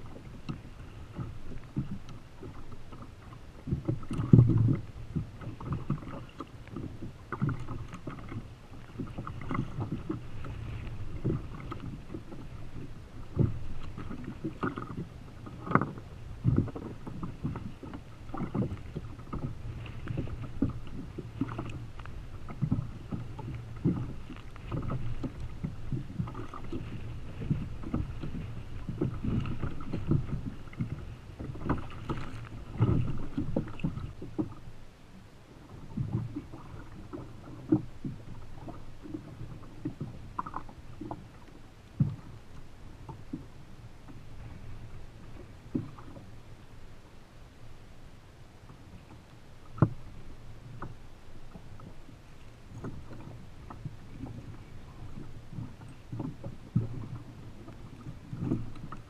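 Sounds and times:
water slapping against plastic hull: 0.0s - 34.6s
wind: 0.0s - 59.0s.

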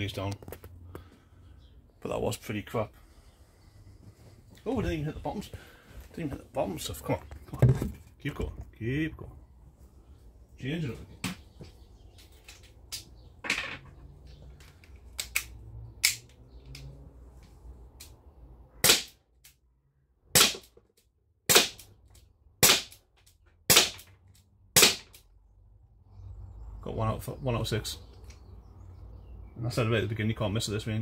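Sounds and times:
air pistol shots: 18.8s - 19.2s, 20.3s - 20.7s, 21.5s - 21.9s, 22.6s - 23.0s, 23.7s - 24.1s, 24.8s - 25.2s.

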